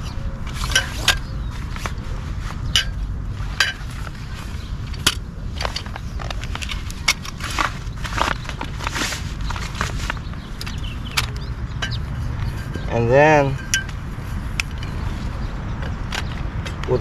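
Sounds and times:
low rumble: 0.0 - 16.9
nylon net rustling: 7.3 - 10.2.

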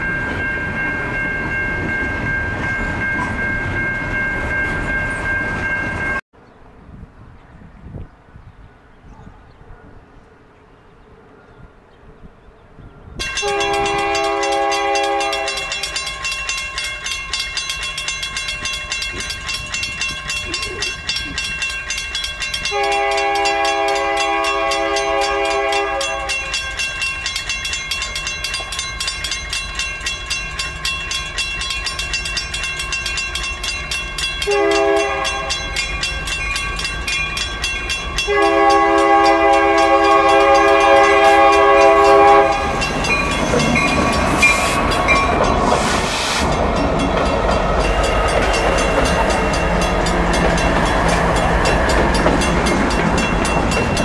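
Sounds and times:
faint outdoor background: 6.3 - 54.0
train horn: 13.2 - 16.0, 22.6 - 26.6, 34.4 - 36.2, 38.2 - 44.8
bell ringing rapidly: 13.2 - 24.0, 25.7 - 45.7, 46.5 - 54.0.

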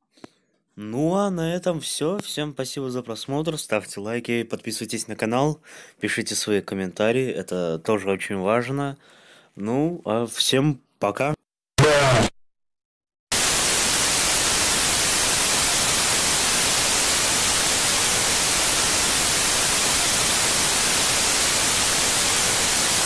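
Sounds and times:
static hiss: 13.3 - 23.0.

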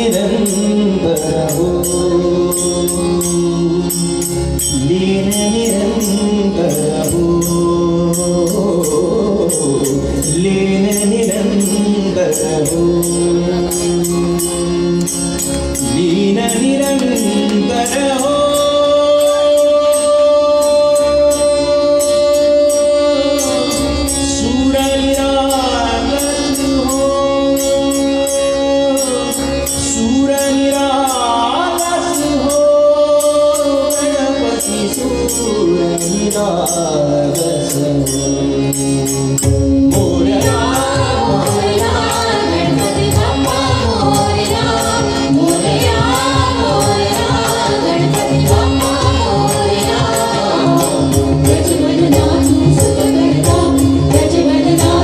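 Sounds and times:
tabla drumming: 0.0 - 21.3, 39.2 - 55.0
person singing devotional song: 0.0 - 55.0.

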